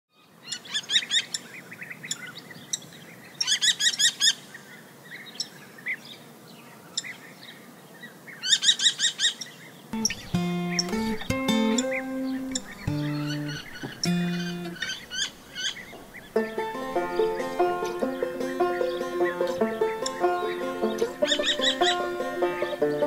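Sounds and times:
soft bird chirps: 0.1s - 23.0s
kestrel high klee calls: 8.4s - 16.4s, 17.0s - 22.2s
acoustic guitar music: 10.0s - 23.0s.

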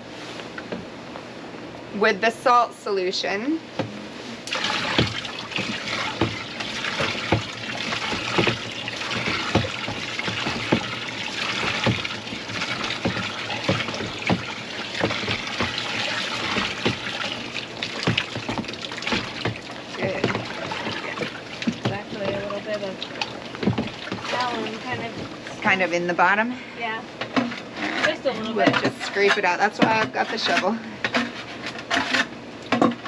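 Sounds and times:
water sloshing and trickling: 4.4s - 26.4s, 27.2s - 33.0s.

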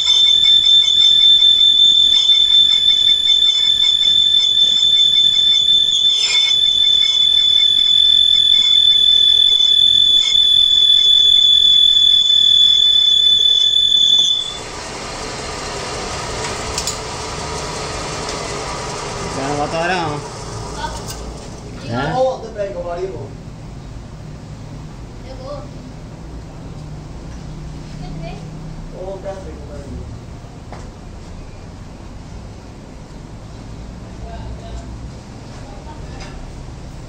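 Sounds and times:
lathe running: 11.6s - 20.8s.

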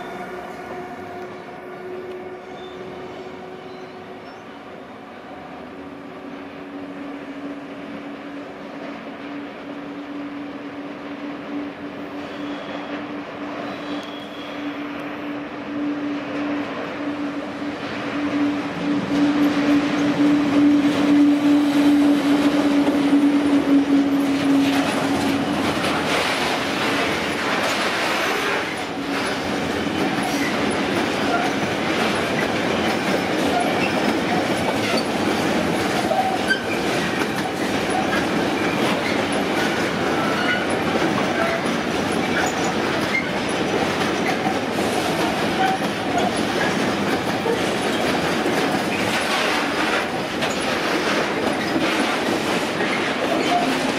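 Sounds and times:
electric locomotive humming: 0.0s - 53.9s
faint wheel squeals: 12.2s - 14.8s
train wheels clattering over joints: 18.2s - 53.9s.

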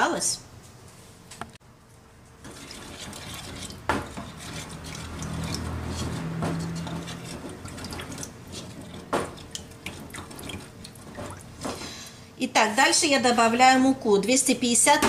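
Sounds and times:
liquid swishing in bowl: 2.4s - 11.9s.

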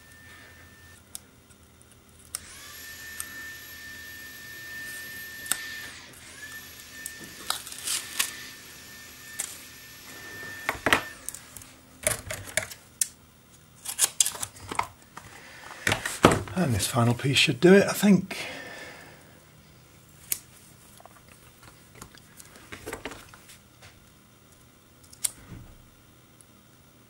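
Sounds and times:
faint high whine: 0.0s - 1.2s, 2.3s - 12.7s.

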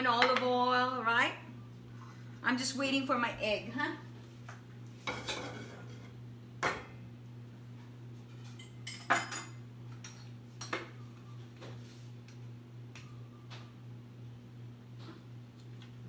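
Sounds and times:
steady low hum: 0.0s - 16.0s
utensils clinking against dishes: 8.3s - 10.9s.

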